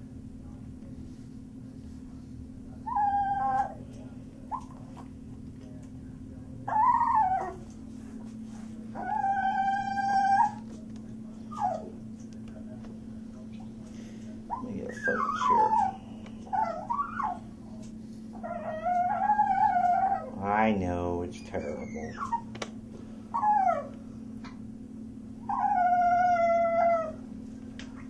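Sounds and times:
puppy whining and howling: 0:02.8 - 0:03.8, 0:06.7 - 0:07.7, 0:08.9 - 0:10.7, 0:11.5 - 0:12.0, 0:14.5 - 0:17.6, 0:18.3 - 0:20.4, 0:21.4 - 0:22.5, 0:23.3 - 0:24.0, 0:25.4 - 0:27.3.

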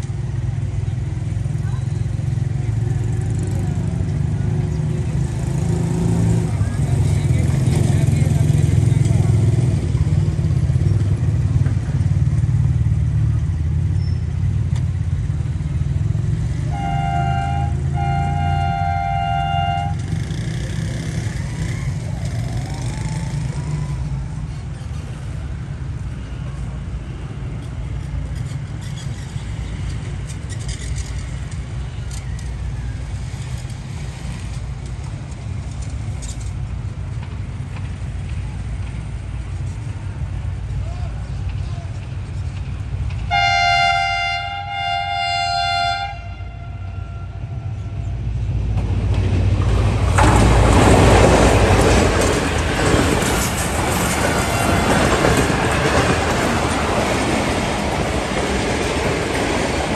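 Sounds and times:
vehicle engines idling: 0:00.0 - 0:45.4
train air horn chord: 0:16.7 - 0:20.0, 0:43.3 - 0:47.8.

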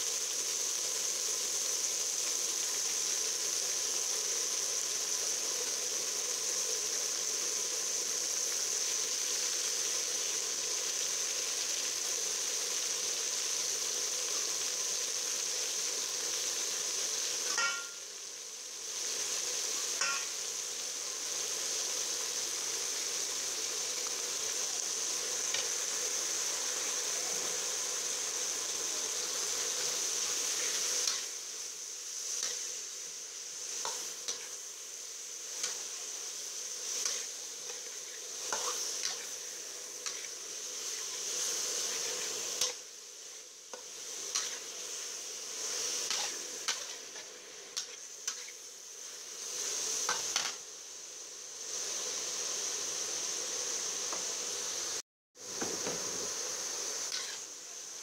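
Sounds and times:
meat sizzling in a wok: 0:00.0 - 0:58.0
metal spatula scraping a pan: 0:37.0 - 0:39.3, 0:40.0 - 0:41.2, 0:44.3 - 0:44.7, 0:46.0 - 0:48.6, 0:57.1 - 0:57.5.

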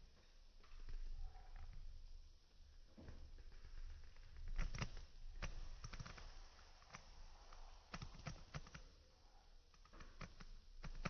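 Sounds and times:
faint clicks and taps: 0:02.9 - 0:09.0, 0:09.7 - 0:11.0.

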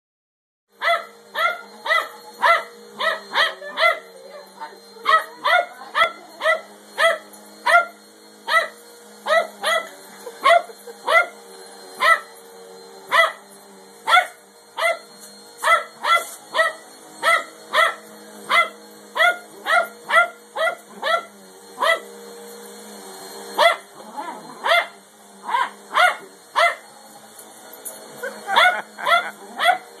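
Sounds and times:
vacuum cleaner motor hum: 0:00.7 - 0:30.0
dog barking: 0:00.8 - 0:04.1, 0:05.0 - 0:11.3, 0:12.0 - 0:12.3, 0:13.1 - 0:13.4, 0:14.1 - 0:22.1, 0:23.6 - 0:26.8, 0:28.4 - 0:29.9.

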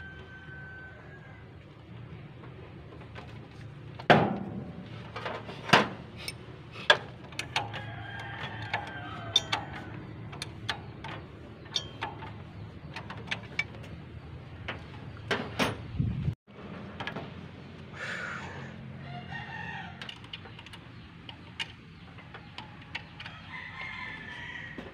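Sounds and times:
wrench clicking and knocking: 0:06.2 - 0:13.9.

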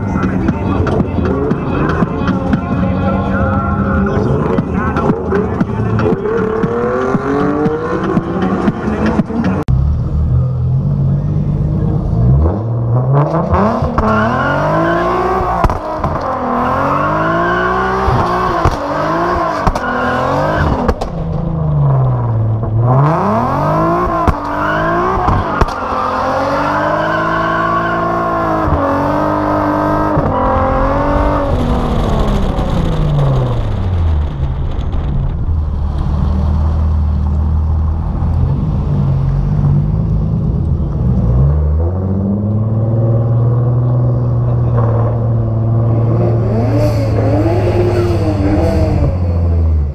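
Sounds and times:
car engine revving: 0:00.0 - 0:49.9.

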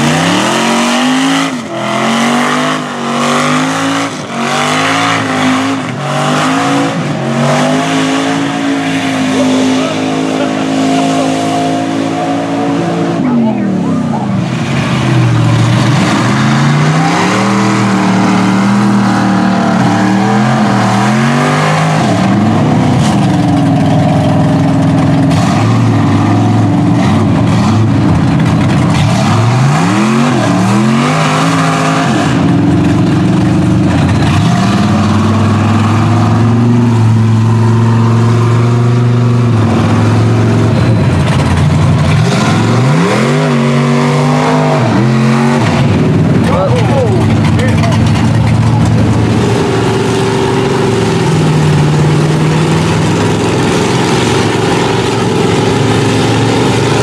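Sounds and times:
truck engine revving: 0:00.0 - 0:57.0
tyres churning through mud: 0:00.0 - 0:57.0.

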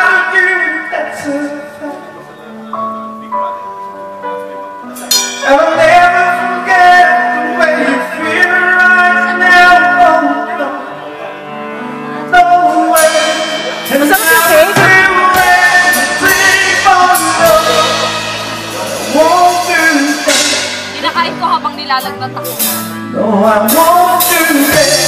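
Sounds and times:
man singing lead: 0:00.0 - 0:02.8, 0:04.8 - 0:25.0
live band playing: 0:00.0 - 0:25.0
drums and cymbals: 0:04.9 - 0:06.0, 0:13.0 - 0:25.0.

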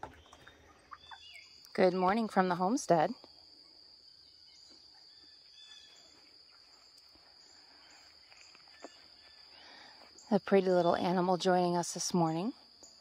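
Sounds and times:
faint bird chirps: 0:00.0 - 0:02.3, 0:03.3 - 0:10.4
high-pitched insect trill: 0:01.0 - 0:13.0.

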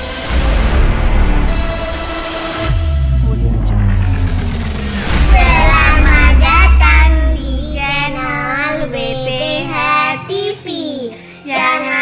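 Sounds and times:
backing music: 0:00.1 - 0:12.0
high-pitched voice singing: 0:05.2 - 0:12.0.

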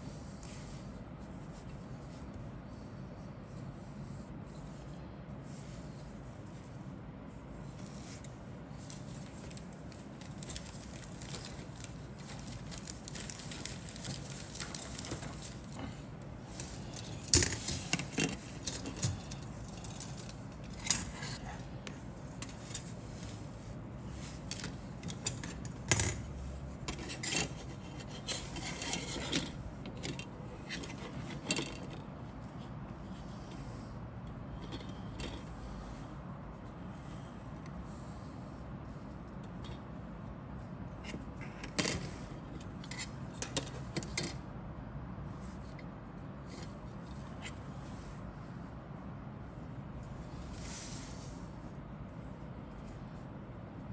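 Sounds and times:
plastic parts rubbing and rustling: 0:07.6 - 0:32.6.

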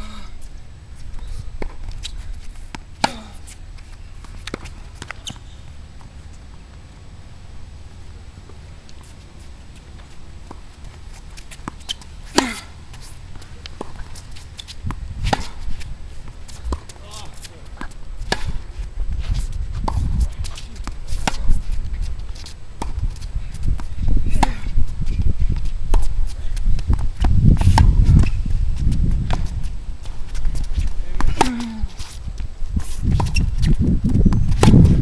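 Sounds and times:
racket striking tennis ball: 0:02.7 - 0:03.5, 0:11.3 - 0:13.1, 0:13.7 - 0:18.6, 0:19.8 - 0:21.7, 0:23.7 - 0:24.8, 0:27.6 - 0:28.4
shoe steps on court: 0:08.5 - 0:35.0
ball bouncing on hard court: 0:23.7 - 0:24.7.

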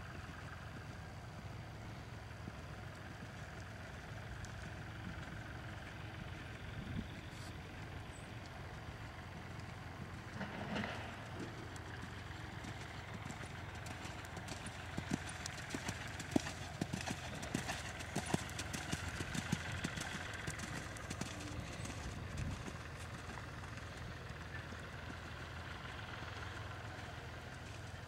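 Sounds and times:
horse hoofbeats on sand: 0:10.3 - 0:23.3.

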